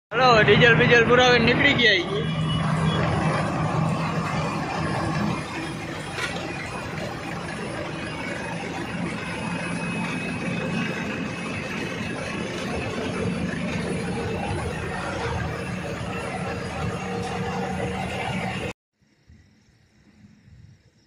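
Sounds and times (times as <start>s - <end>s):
diesel truck engine running: 0.1s - 18.8s
road noise: 0.1s - 18.8s.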